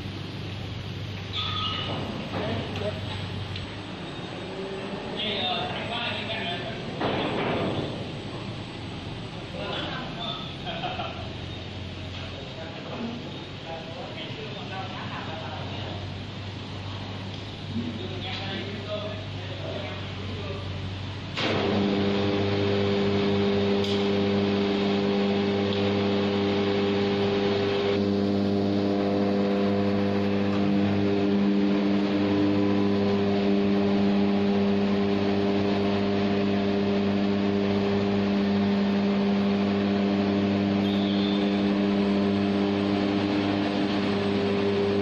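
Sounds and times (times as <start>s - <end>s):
electric hoist motor whining: 20.2s - 45.0s.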